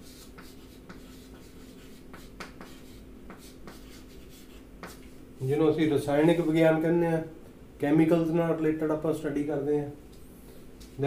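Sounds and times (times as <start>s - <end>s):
chalk tapping and scratching: 0.0s - 5.6s.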